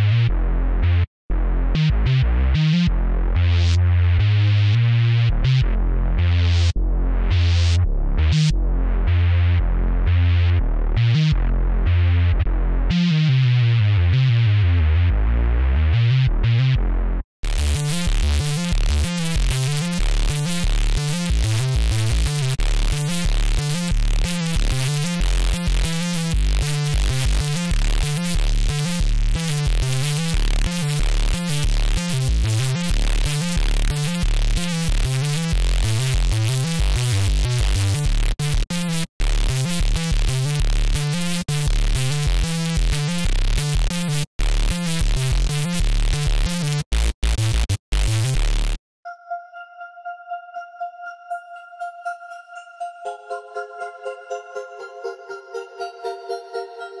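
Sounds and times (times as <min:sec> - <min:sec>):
deep bass synthesizer notes: 0:00.0 - 0:48.8
fast rhythmic synthesizer: 0:17.4 - 0:57.0.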